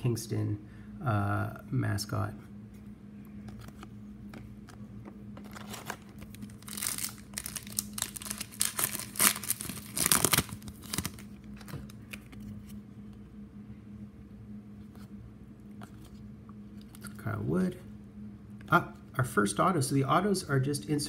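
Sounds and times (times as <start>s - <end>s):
card pack wrapper tearing: 5.4s - 12.5s.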